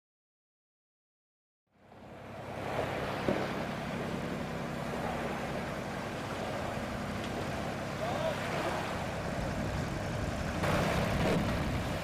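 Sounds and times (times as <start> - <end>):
tractor engine running: 3.6 - 8.2, 8.8 - 12.0.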